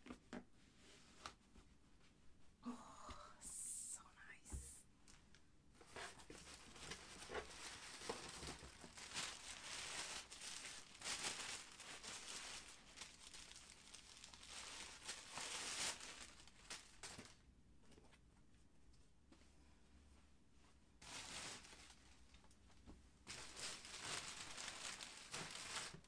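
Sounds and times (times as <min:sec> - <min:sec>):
packing paper crinkling: 0:05.8 - 0:17.4, 0:21.0 - 0:22.5, 0:23.2 - 0:26.0.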